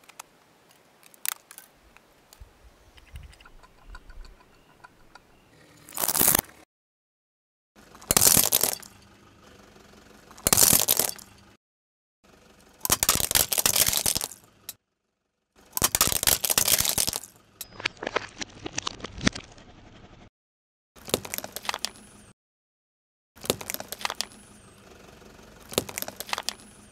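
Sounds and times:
car tyre crushing brittle objects: 5.9s - 6.5s, 7.8s - 9.0s, 10.3s - 11.4s, 12.6s - 14.7s, 15.6s - 19.6s, 21.0s - 22.2s, 23.4s - 24.9s, 25.5s - 26.9s.

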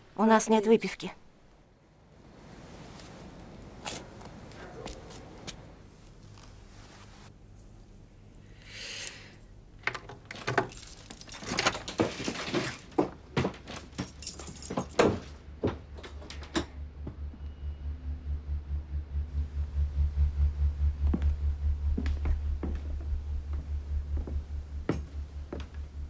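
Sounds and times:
keys jangling: 10.4s - 12.8s, 13.7s - 15.1s
low pulsing beat: 16.8s - 26.0s.

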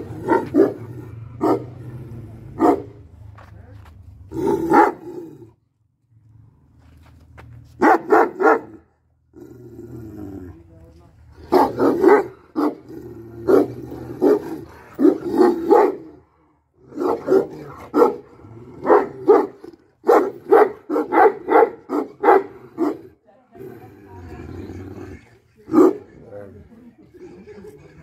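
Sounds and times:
dog barking deeply: 0.0s - 1.8s, 2.6s - 3.0s, 4.4s - 5.3s, 7.8s - 8.8s, 11.4s - 16.2s, 16.9s - 23.1s.

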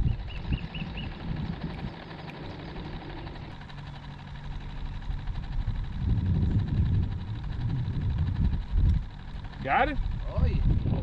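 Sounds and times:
boat motor humming: 0.0s - 11.0s.

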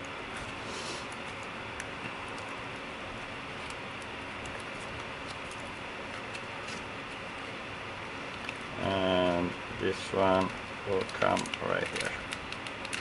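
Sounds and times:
small parts clicking and tapping: 10.2s - 13.0s.

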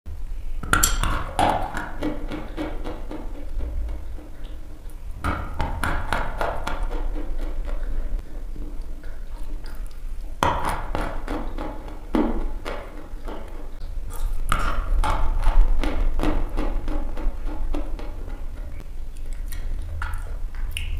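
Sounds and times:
steady low hum: 0.1s - 20.9s
chalk crunching while chewed: 14.1s - 14.6s.

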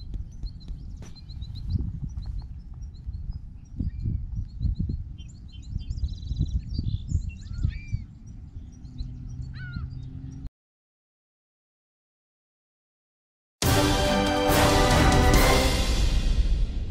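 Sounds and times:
songbirds chirping and singing: 0.0s - 10.5s
wind rumbling on microphone: 0.0s - 10.5s.

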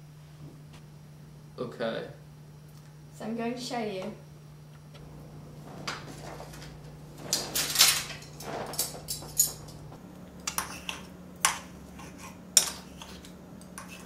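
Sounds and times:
cutlery scraping on ceramic plate: 10.5s - 14.0s.

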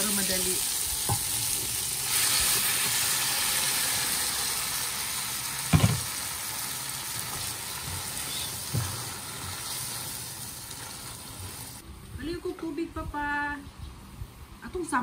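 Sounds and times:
liquid sizzling in hot pot: 0.0s - 11.8s.

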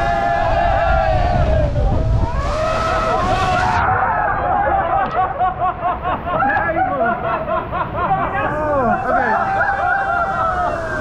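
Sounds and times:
people laughing: 4.4s - 11.0s
people talking over one another: 8.2s - 11.0s.

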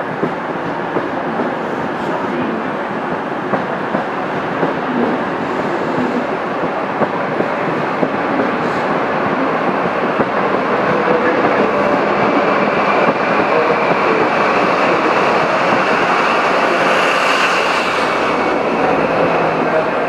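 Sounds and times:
train wheels rushing on rails: 0.0s - 20.0s.

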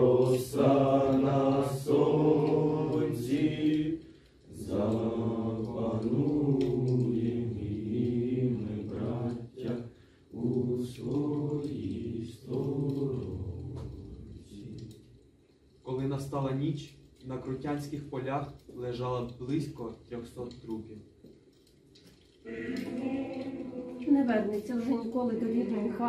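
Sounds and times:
young men singing together: 0.0s - 15.0s, 22.4s - 24.0s.

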